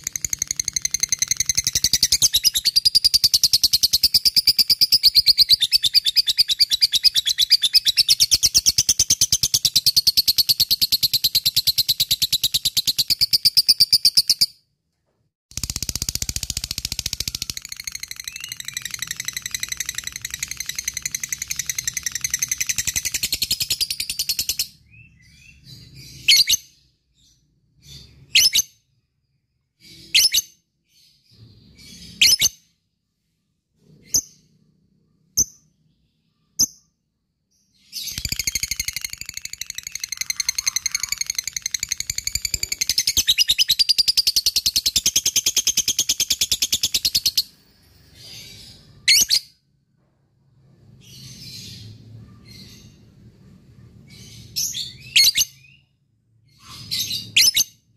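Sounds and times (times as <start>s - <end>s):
sharp bird chirps: 0.0s - 14.6s, 15.5s - 32.8s, 33.8s - 49.6s
bird chattering trill: 38.2s - 47.3s.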